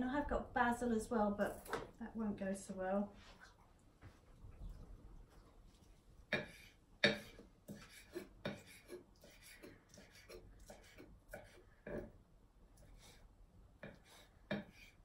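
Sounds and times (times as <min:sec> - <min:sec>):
knife chopping on board: 0:06.3 - 0:09.0, 0:13.8 - 0:14.8.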